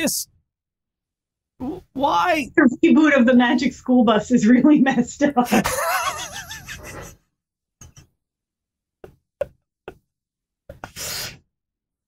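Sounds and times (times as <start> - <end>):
people laughing: 5.5 - 7.1.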